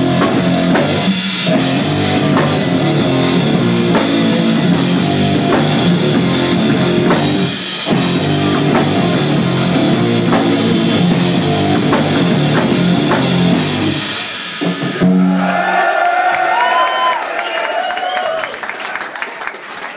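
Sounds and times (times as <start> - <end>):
live rock band playing: 0.0 - 15.6
crowd noise: 15.0 - 19.9.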